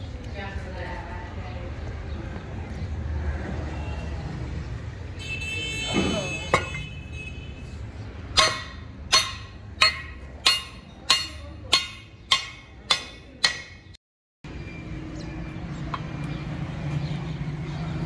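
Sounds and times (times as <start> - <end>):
hammer striking metal rivets: 8.4 - 13.8.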